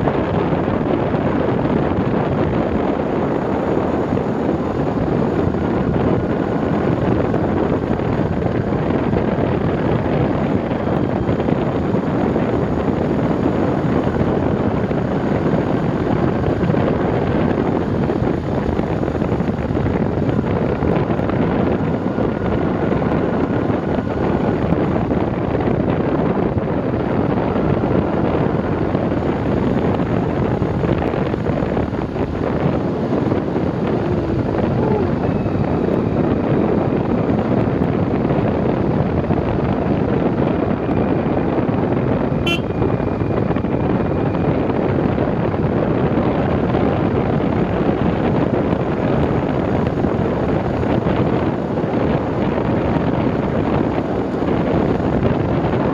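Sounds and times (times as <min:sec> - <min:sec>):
road noise: 0:00.0 - 0:55.9
vehicle running: 0:00.0 - 0:55.9
wind buffeting microphone: 0:00.0 - 0:55.9.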